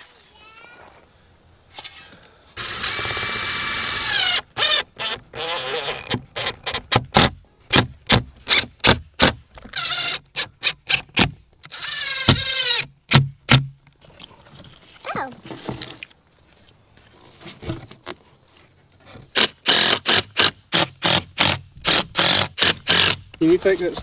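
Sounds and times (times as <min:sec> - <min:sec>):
cordless drill whining: 0:02.6 - 0:06.1, 0:11.6 - 0:12.8.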